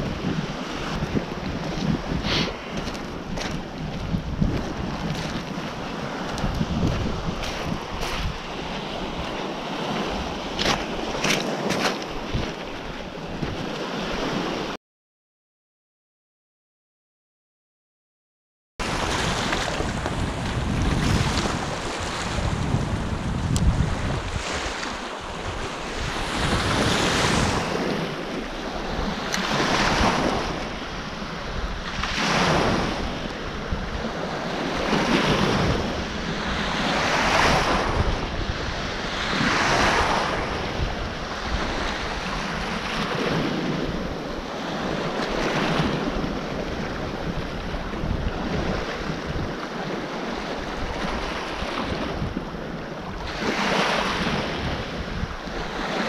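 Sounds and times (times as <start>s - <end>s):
wind rumbling on microphone: 0.0s - 14.8s, 18.8s - 56.0s.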